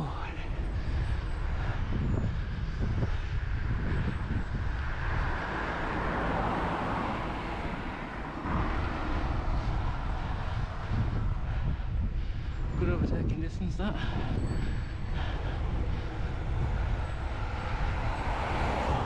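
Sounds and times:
wind buffeting microphone: 0:00.0 - 0:19.0
rushing noise: 0:00.3 - 0:12.9.

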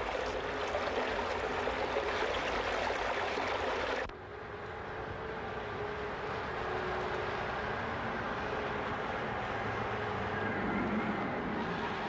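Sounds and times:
running water rushing: 0:00.0 - 0:04.1.

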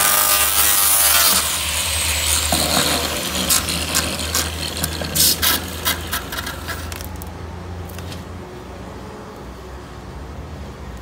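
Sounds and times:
angle grinder sanding panel: 0:00.0 - 0:07.2.

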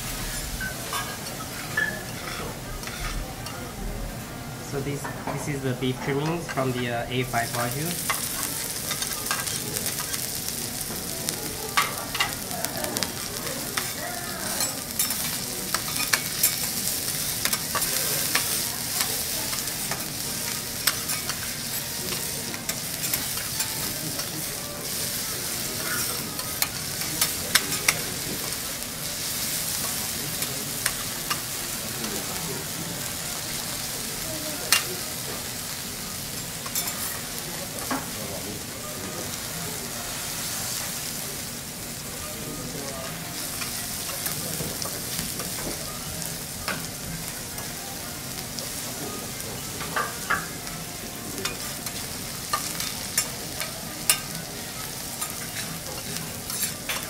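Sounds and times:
meat sizzling on a griddle: 0:00.0 - 0:57.0
metal spatulas scraping a griddle: 0:00.3 - 0:03.2, 0:54.0 - 0:57.0.

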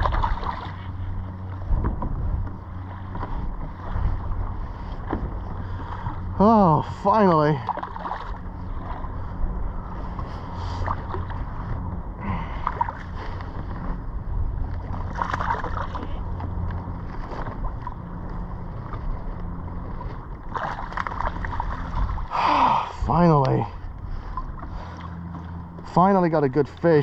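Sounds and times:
sea water lapping against kayak: 0:00.0 - 0:27.0
wind buffeting microphone: 0:00.0 - 0:27.0.

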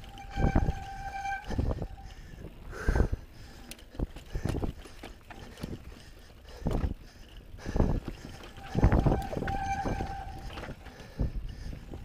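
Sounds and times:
disc brakes squealing: 0:00.0 - 0:02.4, 0:08.5 - 0:11.3
wheels knocking on rocks: 0:03.6 - 0:12.0.

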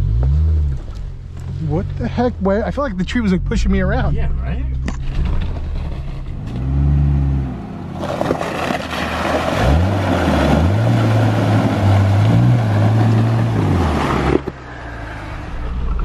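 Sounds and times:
car engine pulling: 0:00.0 - 0:16.0
water and mud splashing: 0:07.9 - 0:14.3.

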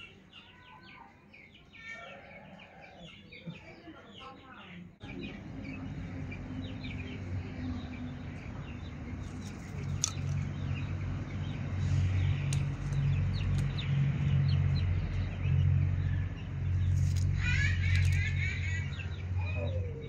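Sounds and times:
small birds chirping: 0:00.0 - 0:20.0
low engine hum: 0:05.0 - 0:20.0.

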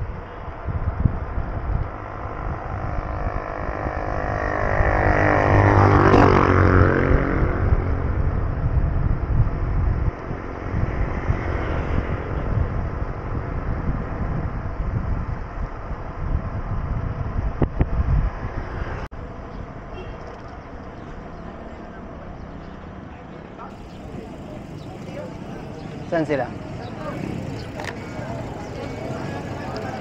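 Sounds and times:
wind buffeting microphone: 0:00.0 - 0:23.0, 0:23.7 - 0:30.0
vehicle passing by: 0:01.9 - 0:08.3, 0:10.3 - 0:14.3, 0:17.8 - 0:19.4, 0:23.6 - 0:30.0.

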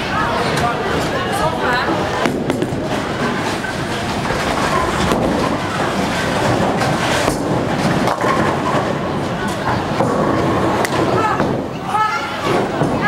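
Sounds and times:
bowling alley clatter: 0:00.3 - 0:13.0
bowling ball rolling on wooden lane: 0:01.9 - 0:11.7.

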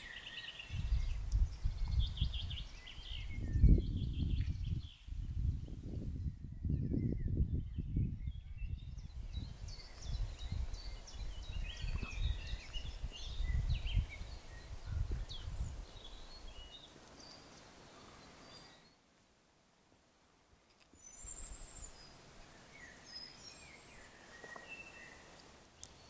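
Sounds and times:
small birds chirping: 0:00.0 - 0:19.0, 0:20.7 - 0:26.0
wind on microphone: 0:00.6 - 0:16.8.

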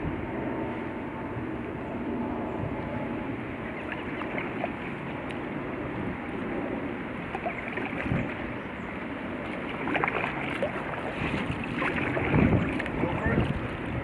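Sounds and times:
paddle splashing in water: 0:03.7 - 0:05.3, 0:07.3 - 0:08.5, 0:09.4 - 0:14.0
water washing: 0:03.7 - 0:05.4, 0:07.2 - 0:08.6, 0:09.3 - 0:14.0.

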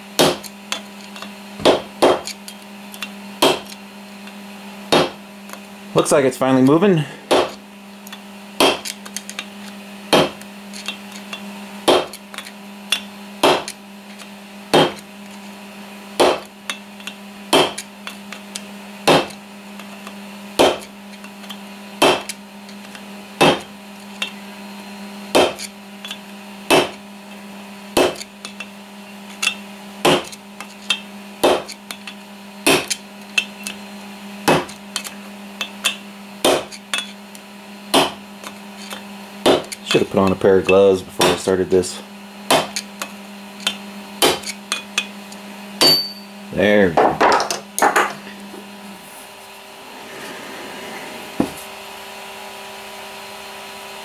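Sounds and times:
hammer striking metal: 0:45.8 - 0:46.3.

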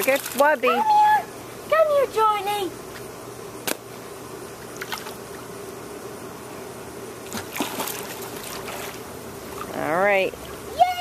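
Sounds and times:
pool water splashing: 0:00.0 - 0:01.1, 0:04.8 - 0:05.2, 0:07.2 - 0:11.0.

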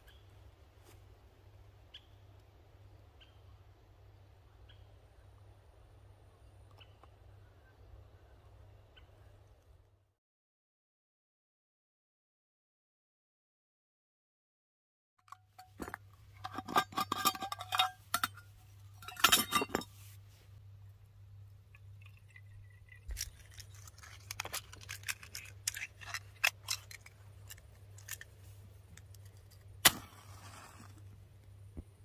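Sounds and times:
small hard objects clinking: 0:21.8 - 0:28.4.

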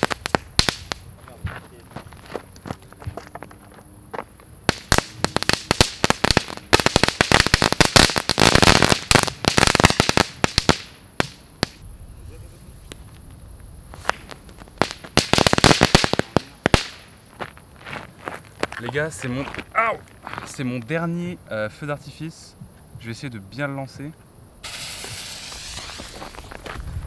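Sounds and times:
firework crackling pops: 0:00.0 - 0:01.4, 0:04.6 - 0:11.8, 0:12.8 - 0:17.6, 0:24.6 - 0:27.0.

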